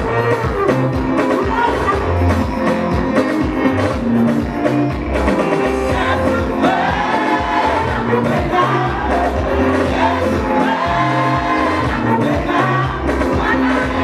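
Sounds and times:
amplified band with steady beat: 0:00.0 - 0:14.0
group singing gospel: 0:05.7 - 0:14.0.

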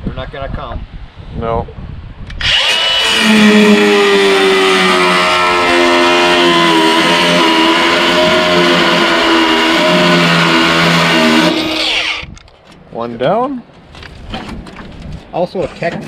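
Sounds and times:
angle grinder cutting metal: 0:02.4 - 0:12.3.

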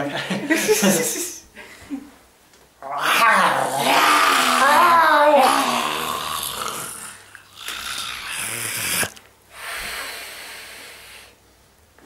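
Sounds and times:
person breathy hissing wheezes: 0:05.4 - 0:11.4.

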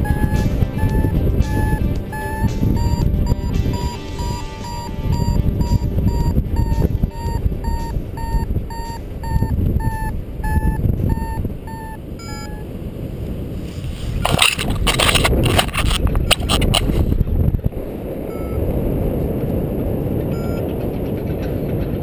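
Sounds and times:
variometer beeping: 0:00.0 - 0:12.7, 0:18.3 - 0:18.7, 0:20.3 - 0:20.7
wind noise: 0:00.0 - 0:22.0.

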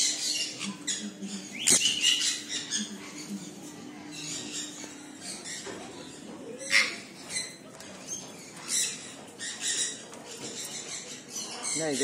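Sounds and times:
parrots squawking: 0:00.0 - 0:03.5, 0:04.1 - 0:07.6.

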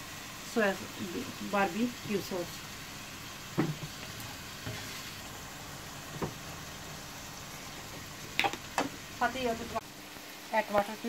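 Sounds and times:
chicken sizzling in a pan: 0:00.0 - 0:11.0
wooden spatula knocking and scraping: 0:06.1 - 0:06.4.

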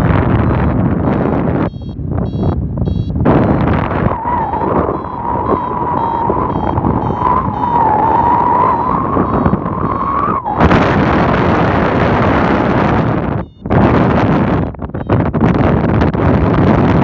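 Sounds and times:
wind rushing over microphone: 0:00.0 - 0:17.0
steady high tone: 0:01.6 - 0:11.9.

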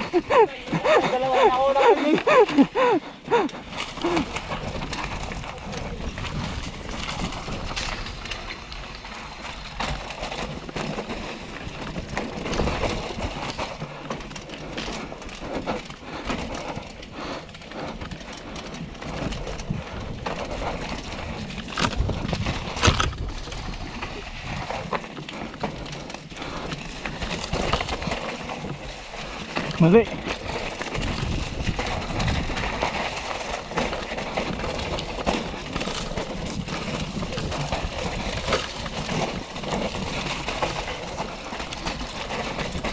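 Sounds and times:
bike rattling and knocking: 0:00.0 - 0:42.9
bike tyres crunching over dirt: 0:00.0 - 0:42.9
wind on microphone: 0:30.9 - 0:33.0.

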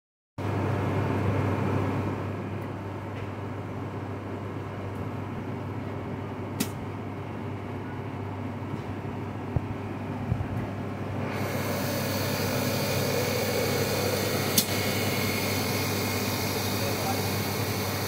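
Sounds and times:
ice cream machine humming: 0:00.4 - 0:18.0
sharp click: 0:06.6 - 0:06.8, 0:14.5 - 0:14.8.

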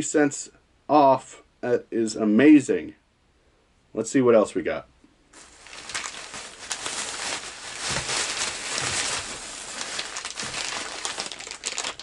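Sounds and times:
plastic bag crinkling: 0:05.4 - 0:12.0.

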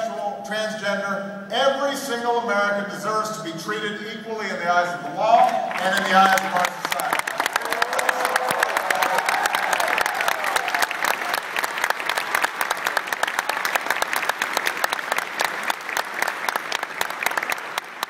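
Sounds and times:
audience applauding: 0:05.7 - 0:18.0
cheers and whoops: 0:07.2 - 0:11.7.

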